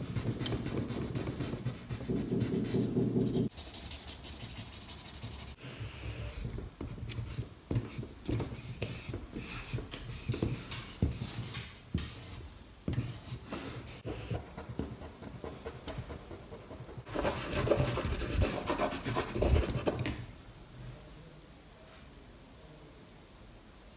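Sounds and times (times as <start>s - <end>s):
charcoal scratching on paper: 0.0s - 5.6s, 14.0s - 20.0s.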